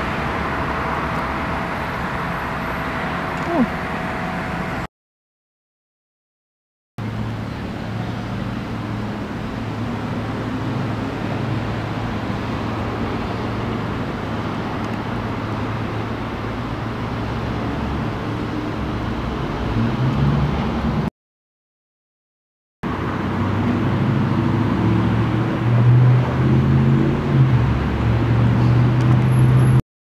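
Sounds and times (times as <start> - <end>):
traffic noise: 0.0 - 4.9, 7.0 - 21.1, 22.8 - 29.8.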